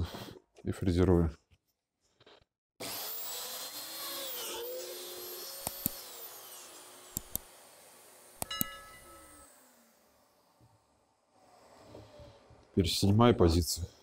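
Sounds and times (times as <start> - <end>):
drilling machine whining: 2.8 - 12.8
sharp clicks: 5.6 - 6.0, 7.1 - 7.5.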